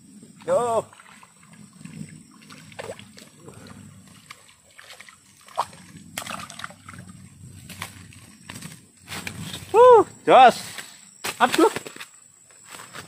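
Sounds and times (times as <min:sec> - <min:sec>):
fish splashing at water surface: 0:02.4 - 0:07.1.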